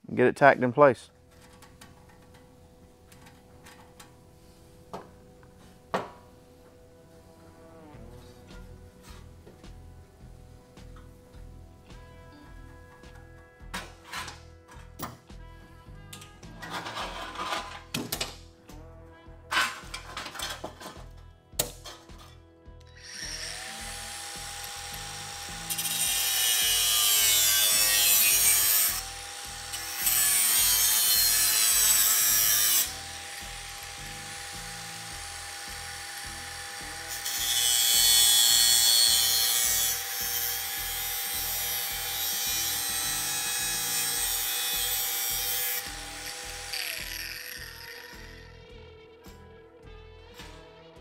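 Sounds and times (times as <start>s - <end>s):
background music with beat: 6.7s - 17.3s, 44.8s - 51.0s
angle grinder whining: 22.9s - 48.7s
grinder cutting sheet metal: 23.0s - 48.7s.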